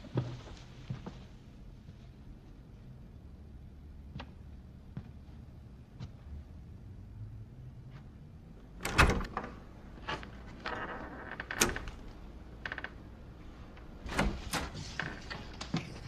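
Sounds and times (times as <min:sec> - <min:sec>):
door latch clicks and knocks: 0:08.8 - 0:09.6.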